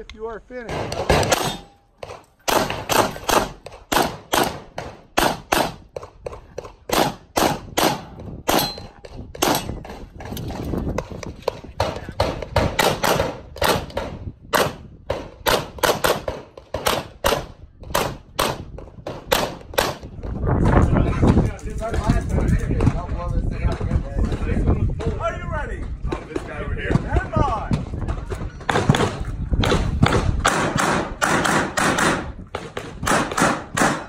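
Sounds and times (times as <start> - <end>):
pistol shots: 0.7 - 5.8, 6.9 - 9.8, 11.8 - 20.0, 28.7 - 32.3, 33.0 - 34.0.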